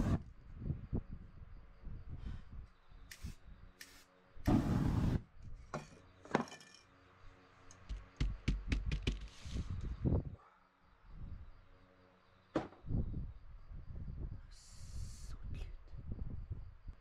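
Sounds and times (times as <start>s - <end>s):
spray paint hissing: 3.1s - 5.2s
hand patting on board: 7.9s - 9.3s.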